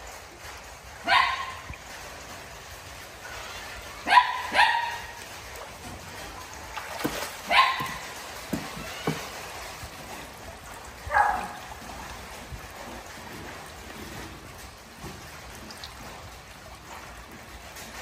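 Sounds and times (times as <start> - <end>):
pool water trickling and lapping: 0.0 - 18.0
soft knocks: 7.0 - 9.4.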